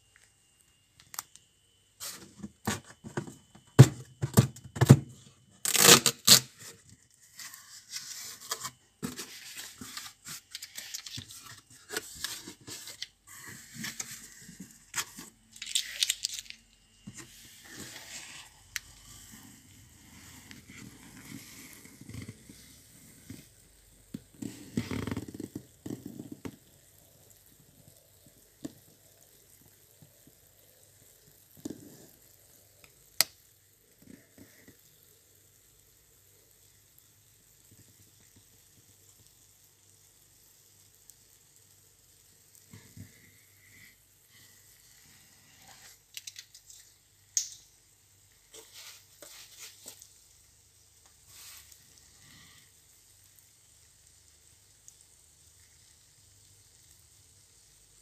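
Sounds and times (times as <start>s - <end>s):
packing tape ripping off cardboard: 3.8s - 19.0s.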